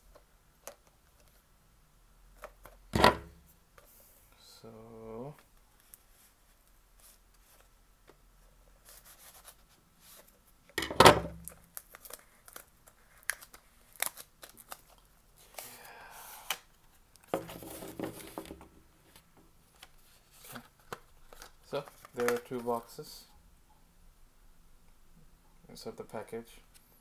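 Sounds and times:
plastic crinkling: 0:11.4 - 0:15.7.

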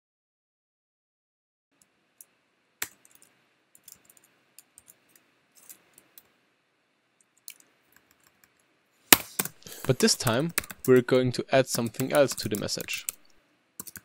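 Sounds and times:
computer keyboard keys clicking: 0:09.4 - 0:11.1, 0:11.7 - 0:14.0.

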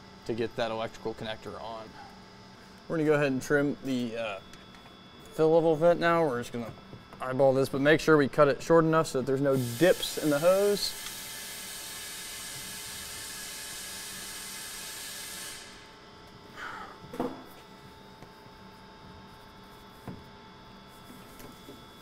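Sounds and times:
steady hiss: 0:09.4 - 0:15.9.

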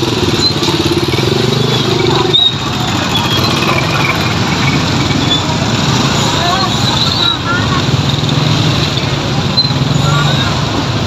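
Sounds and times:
motorcycle engine running: 0:00.0 - 0:06.2
dense background din: 0:00.0 - 0:11.0.

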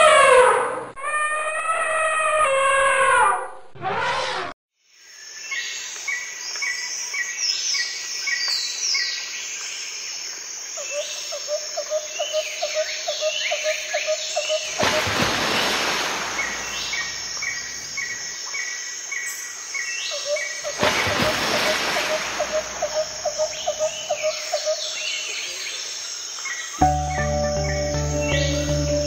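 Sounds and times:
high insect hum: 0:09.4 - 0:29.0
birds chirping and calling: 0:22.4 - 0:25.2.

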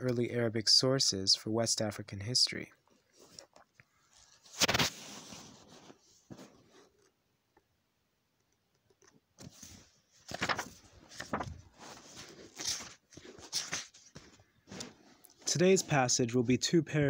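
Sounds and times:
rustling handling noises: 0:02.8 - 0:07.2, 0:08.9 - 0:16.2.

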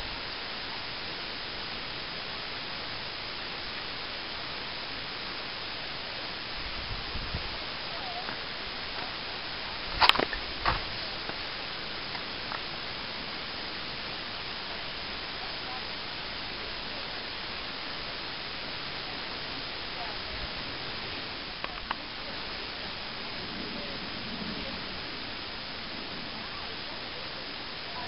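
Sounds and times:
steady hiss: 0:00.0 - 0:28.0
faint ticks: 0:10.0 - 0:12.7, 0:21.4 - 0:22.1.

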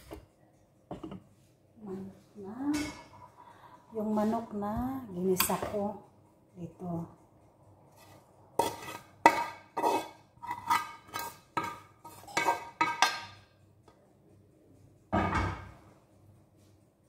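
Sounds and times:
metal utensil scraping frying pan: 0:08.0 - 0:13.4.

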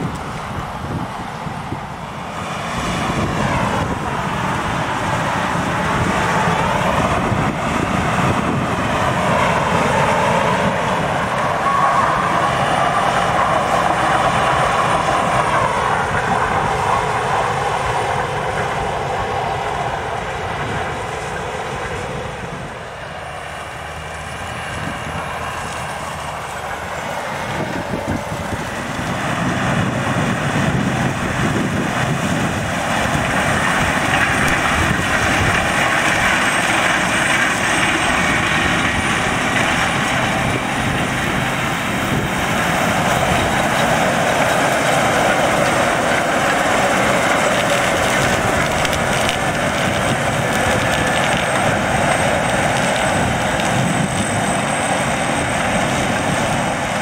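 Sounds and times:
combine harvester approaching: 0:00.0 - 0:57.0
tractor hauling trailer: 0:00.0 - 0:57.0
steady machine whine: 0:24.7 - 0:57.0.

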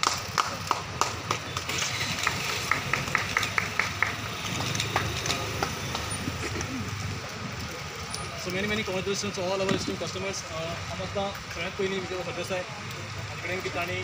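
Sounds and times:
people clapping: 0:00.0 - 0:07.3
low background murmur: 0:00.0 - 0:14.0.

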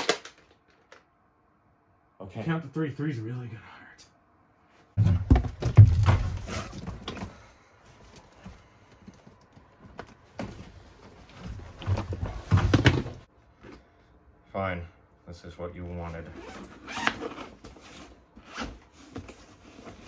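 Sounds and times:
suitcase knocking and clattering: 0:05.0 - 0:07.3, 0:11.7 - 0:13.2
suitcase bumping against boxes: 0:05.0 - 0:07.4, 0:11.4 - 0:13.2.

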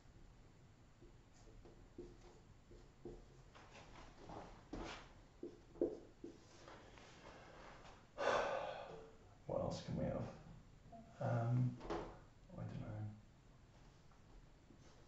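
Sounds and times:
marker squeaking on whiteboard: 0:05.4 - 0:06.4.

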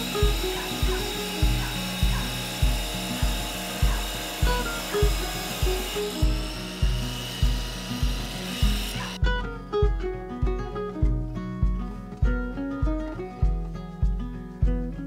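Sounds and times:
wet tile saw cutting tile: 0:00.0 - 0:09.2
acoustic guitar music: 0:00.0 - 0:15.0
background music with steady beat: 0:00.0 - 0:15.0.

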